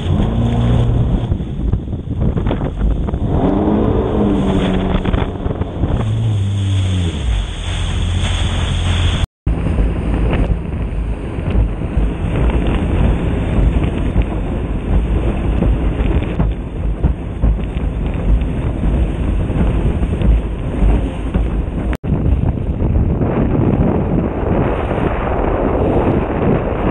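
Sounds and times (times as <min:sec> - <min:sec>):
water spray on hull: 0:00.0 - 0:22.0
jet ski engine: 0:00.0 - 0:26.8
wind buffeting microphone: 0:00.0 - 0:26.9.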